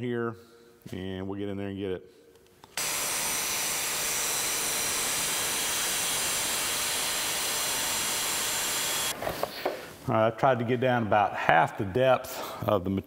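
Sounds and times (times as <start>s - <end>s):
angle grinder cutting metal: 2.8s - 9.1s.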